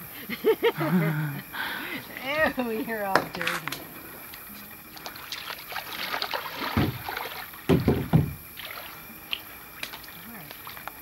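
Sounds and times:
light water sounds: 1.8 - 11.0
kayaks knocking: 3.0 - 8.6
dull thumps: 6.7 - 8.5.

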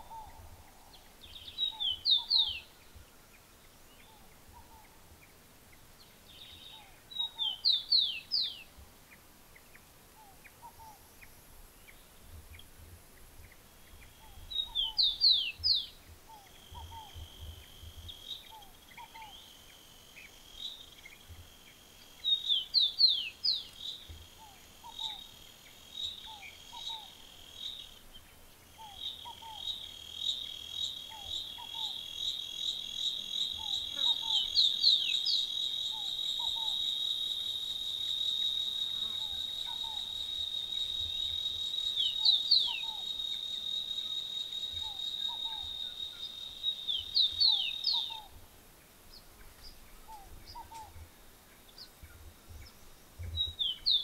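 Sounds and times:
cicadas buzzing: 13.4 - 54.0.

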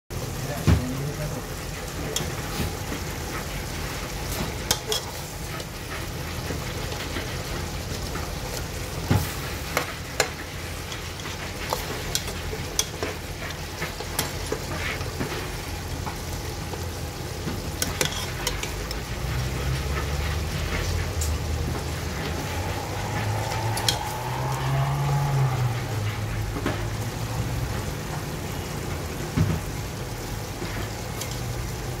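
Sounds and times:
sauce simmering: 0.2 - 32.0
ladle scraping metal pot: 17.7 - 25.1
low rumble: 19.1 - 28.1.

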